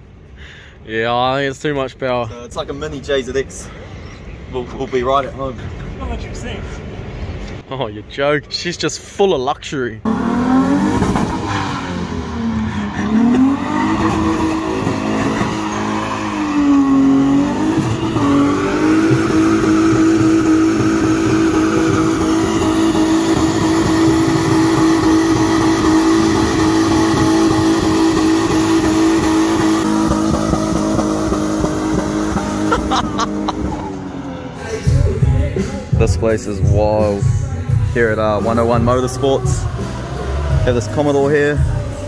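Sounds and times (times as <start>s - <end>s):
car engine revving: 10.0s - 36.0s, 38.0s - 42.0s.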